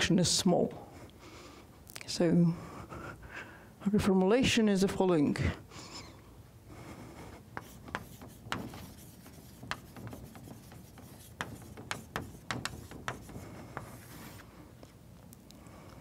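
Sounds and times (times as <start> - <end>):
chalk scrape: 7.2 - 14.5
chalk tapping on blackboard: 7.5 - 14.4.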